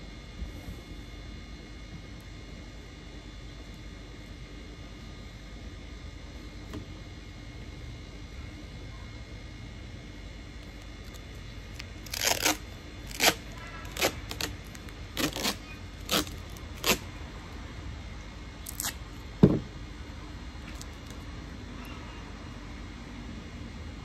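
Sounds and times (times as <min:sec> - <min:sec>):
duct tape ripping off roll: 0:11.0 - 0:17.1, 0:18.6 - 0:19.0
sharp thump: 0:19.4 - 0:19.7.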